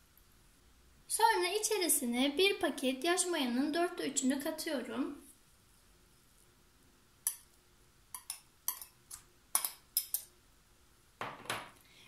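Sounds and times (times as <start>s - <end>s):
kitchenware clinks and taps: 11.2s - 11.8s.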